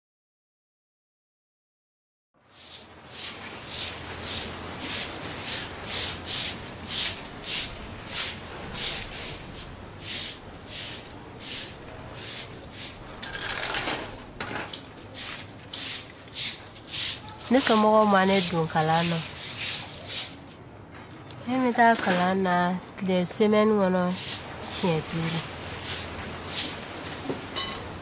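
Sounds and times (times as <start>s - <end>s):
broom sweeping sandy ground: 2.5s - 13.1s, 15.1s - 20.6s, 24.1s - 27.3s.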